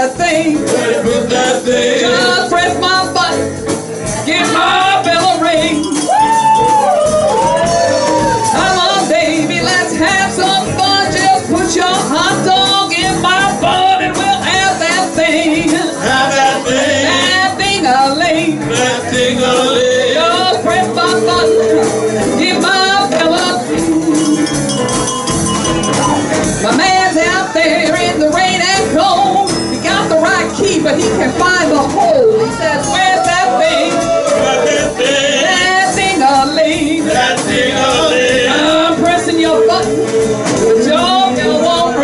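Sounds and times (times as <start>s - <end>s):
bending lead guitar line: 0.0s - 42.0s
blues band playing: 0.0s - 42.0s
drums: 0.0s - 42.0s.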